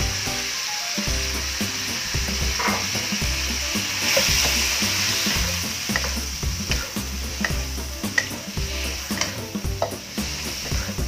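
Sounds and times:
seafood sizzling in a wok: 0.0s - 11.0s
spatula tapping pan: 3.8s - 11.0s.

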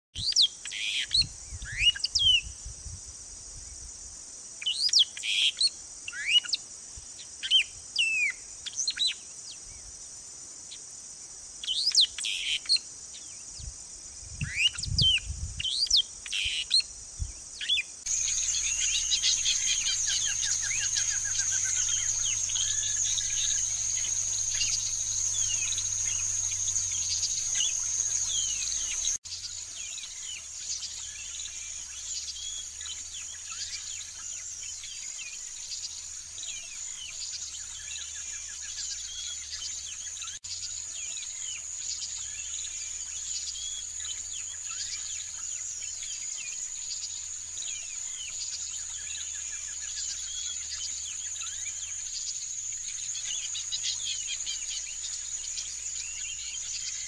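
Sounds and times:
songbird whistling calls: 0.2s - 2.6s, 11.6s - 12.8s, 14.4s - 29.2s
faint bird chirps: 0.2s - 2.7s, 4.6s - 10.0s, 11.6s - 57.0s
high insect hiss: 0.2s - 57.0s
insect buzz: 0.2s - 57.0s.

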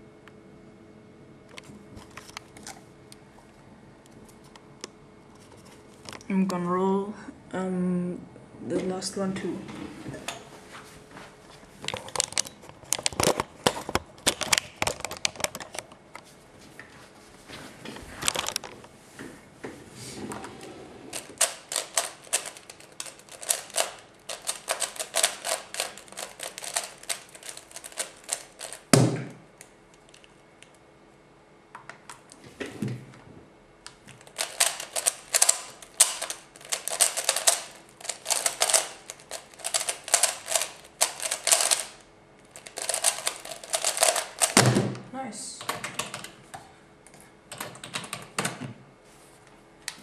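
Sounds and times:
puzzle cube plastic clicking: 34.2s - 42.0s, 42.6s - 44.6s.

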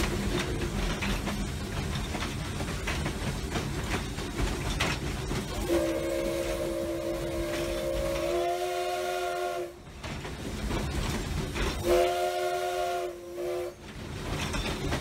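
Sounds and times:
locomotive hiss and rumble: 0.0s - 15.0s
steam locomotive whistle: 5.5s - 9.8s, 11.8s - 13.8s.

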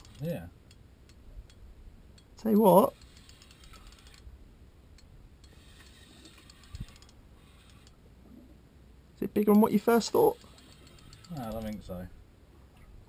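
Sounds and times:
fishing reel clicking: 0.0s - 1.6s, 2.2s - 4.3s, 5.4s - 8.0s, 10.1s - 11.9s.

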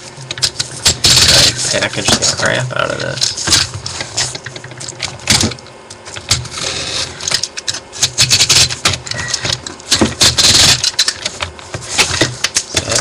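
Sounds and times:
clicks scrapes and rustles: 0.0s - 13.0s
tape rasp: 0.3s - 2.4s, 6.3s - 13.0s.

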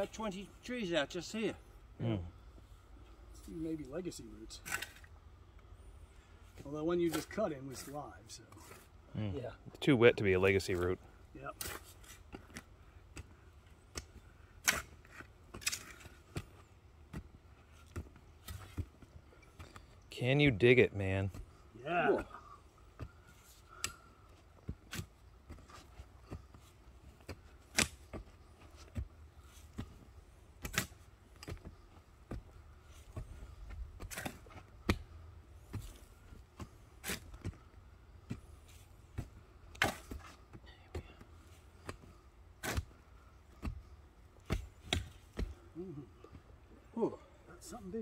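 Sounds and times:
shovel chopping into soil: 13.9s - 16.5s, 27.2s - 28.2s, 30.6s - 31.6s, 34.0s - 35.1s, 37.0s - 37.6s, 39.2s - 40.4s, 42.6s - 43.0s, 44.4s - 45.5s.

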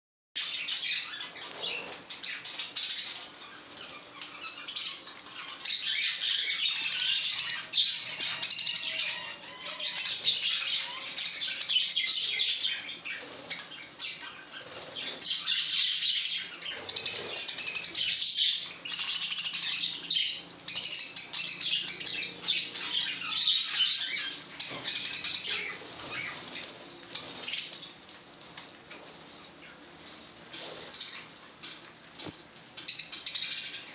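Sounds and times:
budgerigars chattering and chirping: 0.4s - 27.8s.

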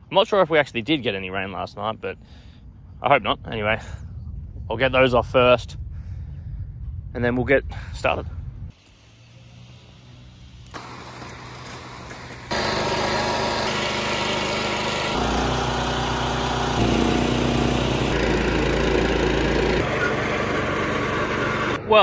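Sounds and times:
small engines running: 8.8s - 21.8s.

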